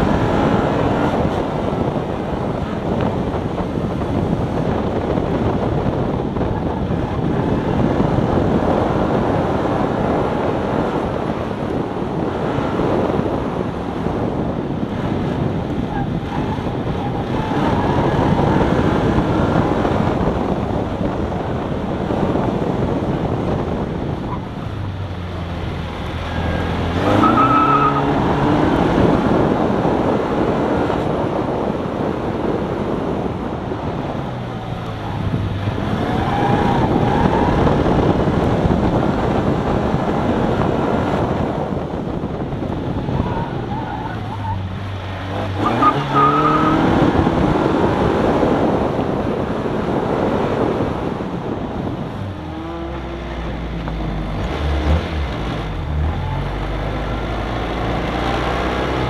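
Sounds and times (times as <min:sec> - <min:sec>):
car engine revving: 0:00.0 - 0:31.4, 0:32.1 - 0:59.0
road noise: 0:00.0 - 0:59.0
wind noise: 0:00.0 - 0:59.0
tires squealing: 0:15.1 - 0:20.5, 0:23.8 - 0:30.4, 0:33.3 - 0:48.8, 0:51.4 - 0:59.0.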